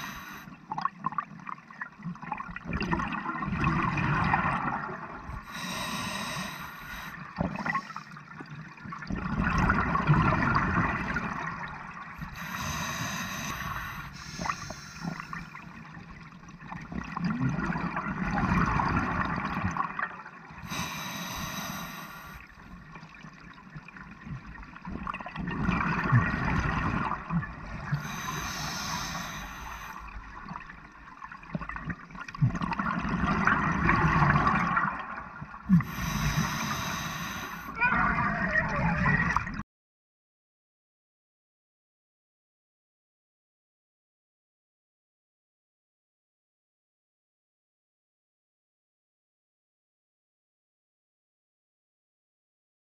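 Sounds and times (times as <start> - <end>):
regulator hissing inhale: 0.0 - 0.5, 5.5 - 8.1, 12.2 - 15.5, 20.7 - 22.4, 28.0 - 30.1, 35.8 - 37.7
exhaled bubbles gurgling: 0.0 - 39.6.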